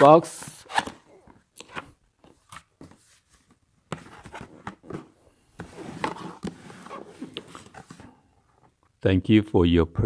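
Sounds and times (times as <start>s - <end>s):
cardboard scraping and rustling: 2.8s - 8.2s.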